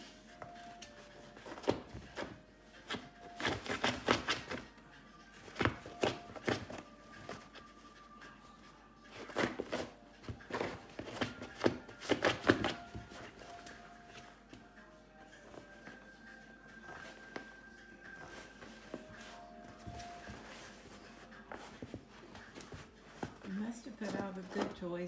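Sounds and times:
dog rummaging through toys: 0:18.3 - 0:25.0.

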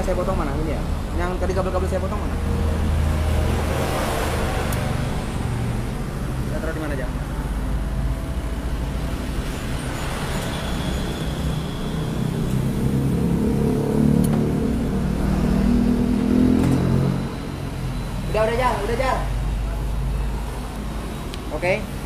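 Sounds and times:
engine humming: 0:00.0 - 0:22.0.

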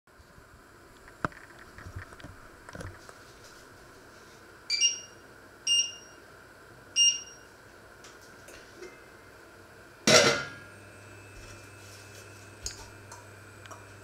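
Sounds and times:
electric hob control beeps: 0:04.7 - 0:06.2, 0:07.0 - 0:07.5.

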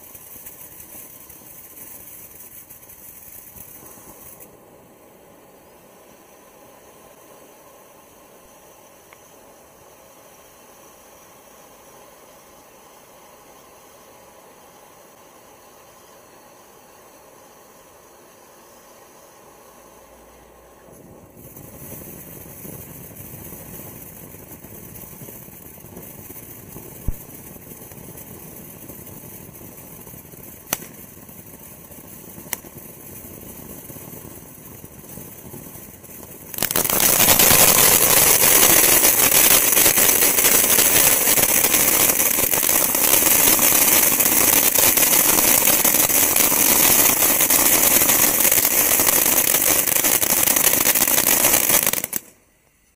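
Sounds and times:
firework pops: 0:00.0 - 0:04.6, 0:20.9 - 0:52.4
firework spraying sparks hissing: 0:00.0 - 0:52.5.

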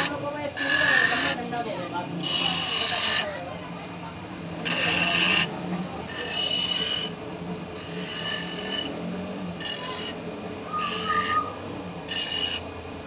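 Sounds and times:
steel bar on grinding wheel: 0:00.0 - 0:01.5, 0:02.2 - 0:03.4, 0:04.6 - 0:13.0
grinder motor humming: 0:00.0 - 0:01.6, 0:04.6 - 0:13.0.

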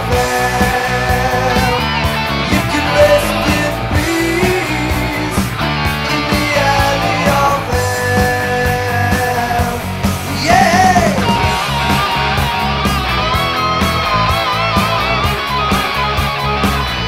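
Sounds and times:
guitar note bending: 0:00.0 - 0:07.8
heavy metal band playing: 0:00.0 - 0:17.0.

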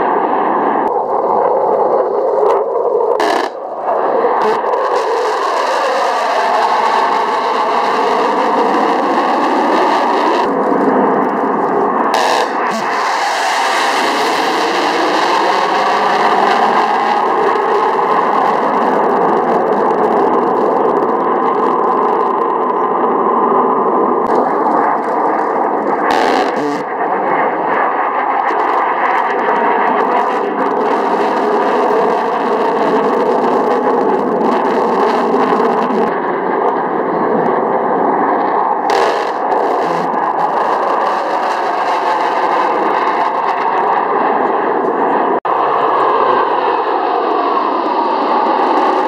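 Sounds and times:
fighter jet engine roar: 0:00.0 - 0:49.0.

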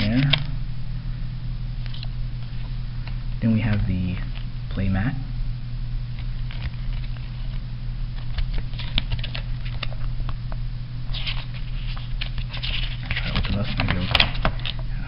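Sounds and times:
low electrical hum: 0:00.0 - 0:15.0
paper and card crinkling: 0:06.1 - 0:10.1, 0:11.1 - 0:14.8.

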